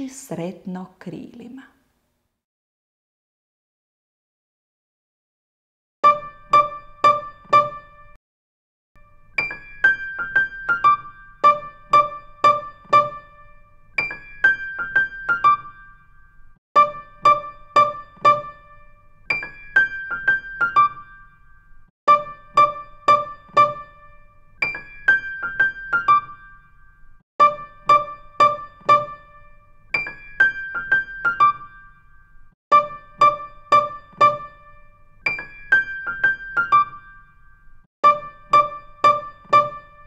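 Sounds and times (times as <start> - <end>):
piano phrase repeating: 9.0 - 40.0.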